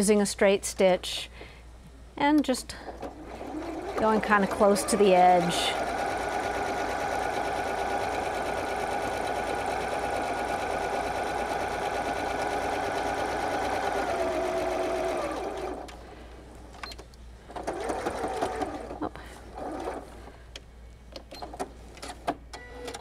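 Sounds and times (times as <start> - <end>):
sewing machine stitching: 3.0 - 15.9, 17.5 - 20.0.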